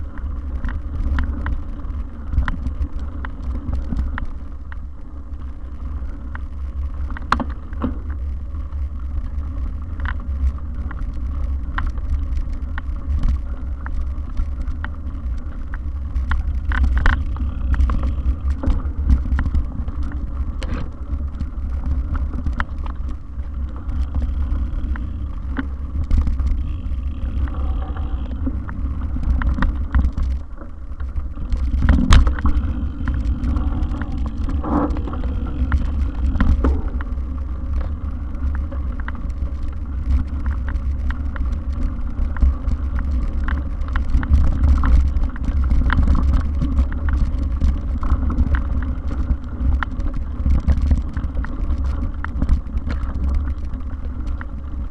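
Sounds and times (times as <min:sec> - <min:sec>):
bike wheels clicking and rattling: 0:00.0 - 0:54.9
rumble of wind and vibration: 0:00.0 - 0:54.9.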